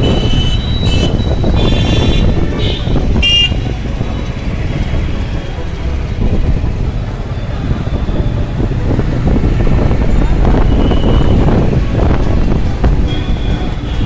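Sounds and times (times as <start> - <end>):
vehicle horn toot: 0.0 - 3.7, 10.7 - 11.5
city traffic rumble: 0.0 - 14.0.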